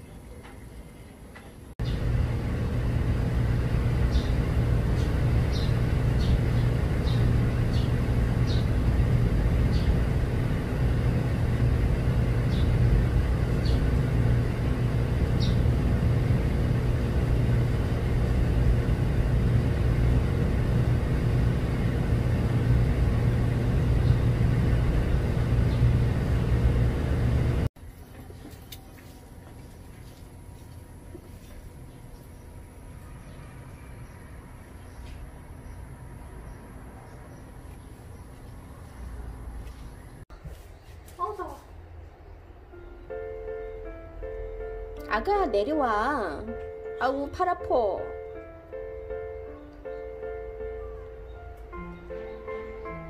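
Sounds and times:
low mechanical rumble: 0:00.0 - 0:40.3.

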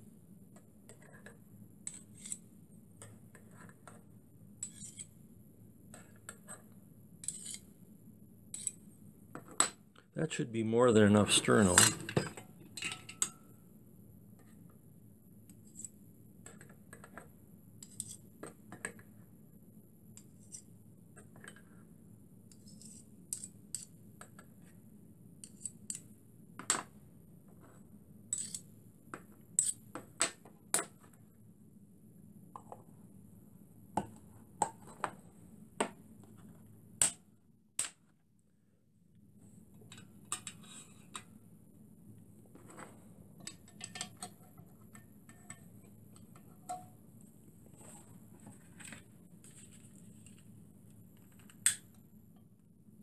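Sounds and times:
faint steady hum: 0:00.0 - 0:53.0
metal pans clicking and scraping: 0:11.6 - 0:13.4, 0:43.4 - 0:46.9.

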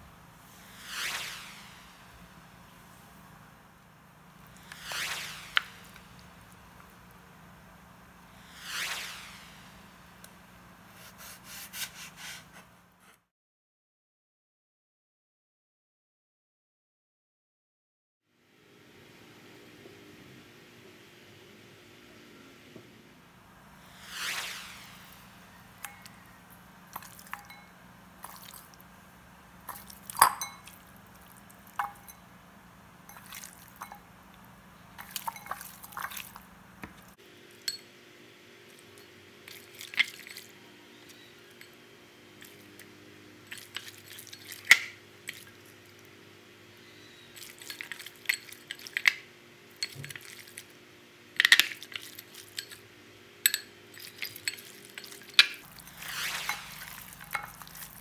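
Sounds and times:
faint steady hum: 0:18.3 - 0:58.0
clinks against ceramic bowl: 0:27.0 - 0:27.7, 0:29.7 - 0:30.8, 0:31.8 - 0:32.2, 0:53.5 - 0:55.6
wet squishes and slaps of meat: 0:56.7 - 0:58.0.

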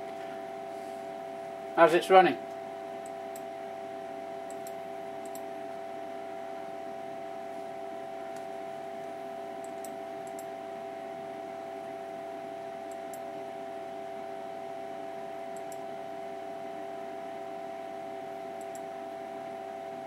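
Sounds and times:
computer hum: 0:00.0 - 0:20.0
faint mouse clicks: 0:04.5 - 0:05.5, 0:15.5 - 0:15.8, 0:18.6 - 0:18.9.

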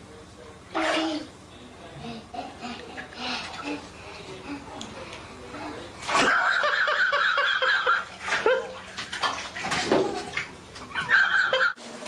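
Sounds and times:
bathwater splashing: 0:05.5 - 0:12.0.

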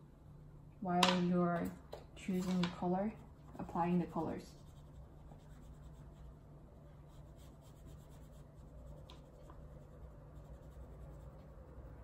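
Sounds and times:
oil pastel rubbing on paper: 0:04.1 - 0:06.4, 0:07.1 - 0:12.0.

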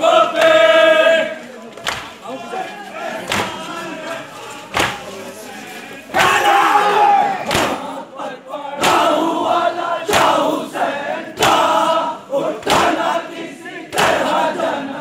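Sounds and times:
men chanting a lament: 0:00.0 - 0:15.0.

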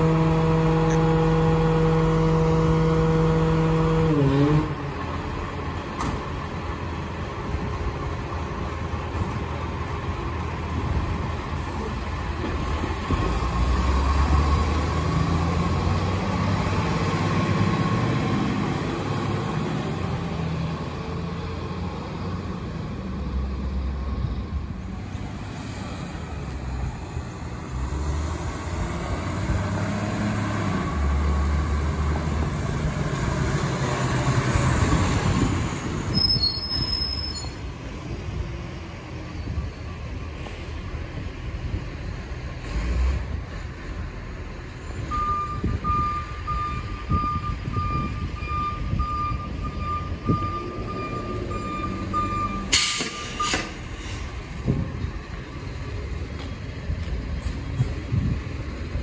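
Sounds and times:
diesel engine rumbling: 0:00.0 - 0:59.0
road traffic: 0:00.0 - 0:59.0.

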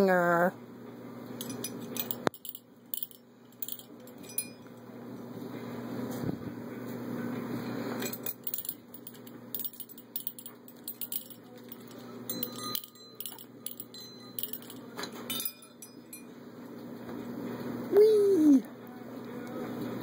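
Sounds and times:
metal chains clinking: 0:01.4 - 0:04.7, 0:08.0 - 0:16.3
bells ringing: 0:09.6 - 0:16.4.

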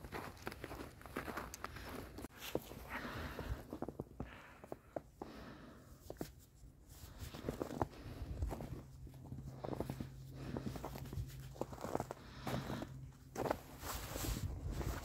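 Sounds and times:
low steady hum: 0:00.1 - 0:15.0
gloves rustling and scuffing: 0:06.1 - 0:15.0.

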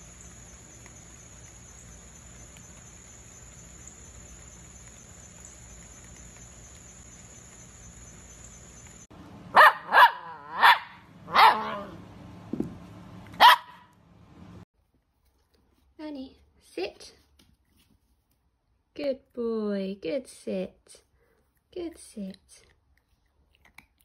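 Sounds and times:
high insect drone: 0:00.0 - 0:09.1
puppy barking high yaps: 0:09.5 - 0:12.0, 0:13.3 - 0:14.0.

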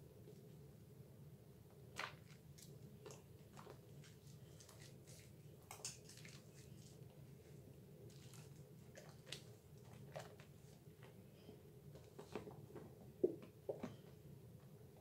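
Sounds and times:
low steady hum: 0:00.0 - 0:15.0
wet soap lather squelches: 0:08.0 - 0:10.6.

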